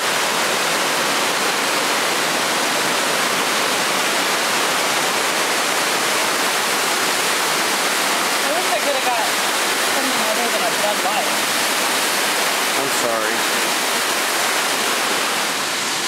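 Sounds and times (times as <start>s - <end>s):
waterfall hissing: 0.0s - 16.0s.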